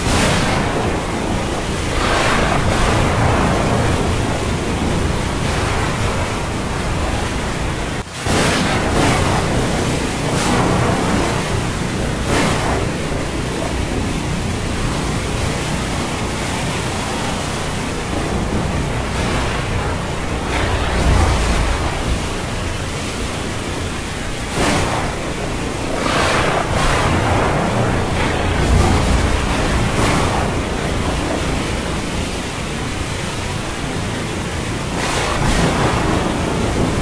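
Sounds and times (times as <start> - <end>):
breaking waves: 0.0 - 37.0
rain: 0.0 - 37.0.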